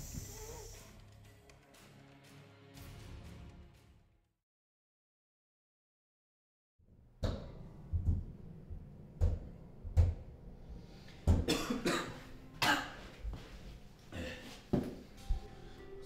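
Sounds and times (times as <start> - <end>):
man coughing: 11.5 - 13.0, 14.1 - 14.6.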